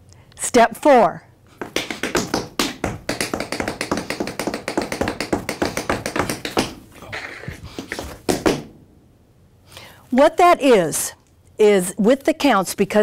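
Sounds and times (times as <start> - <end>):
tap shoes on wooden floor: 1.6 - 8.7.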